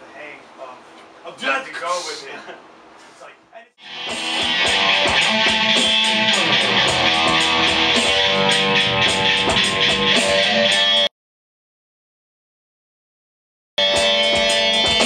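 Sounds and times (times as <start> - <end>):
metal band playing: 3.8 - 11.1, 13.8 - 15.0.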